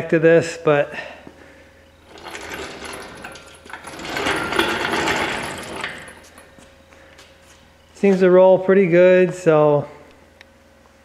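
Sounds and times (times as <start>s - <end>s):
engine stand rolling on casters: 1.9s - 6.7s.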